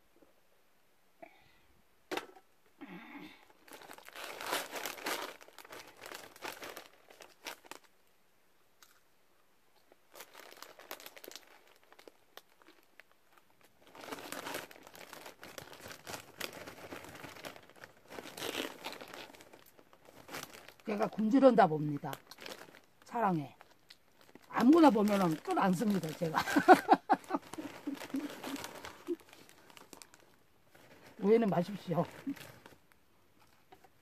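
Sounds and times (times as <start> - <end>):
plastic snack bag crinkling: 3.5 - 8.0, 9.8 - 34.0.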